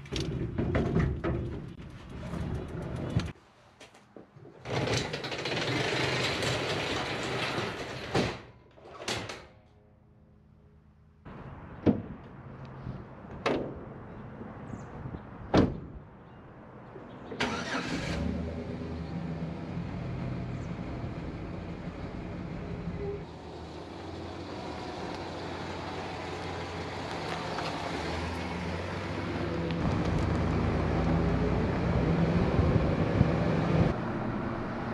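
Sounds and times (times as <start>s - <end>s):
garage door rolling shut: 4.6s - 9.5s
truck engine starting and idling: 17.4s - 34.6s.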